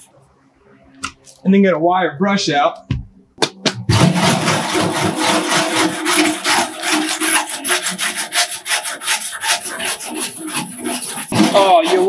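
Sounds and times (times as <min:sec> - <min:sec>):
wire brush scrubbing metal: 0:03.9 - 0:12.0.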